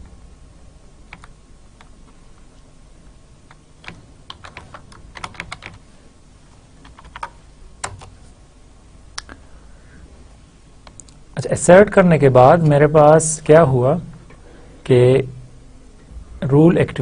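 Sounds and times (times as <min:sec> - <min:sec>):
keyboard typing: 0:01.1 - 0:01.9, 0:03.4 - 0:05.8, 0:06.8 - 0:08.2.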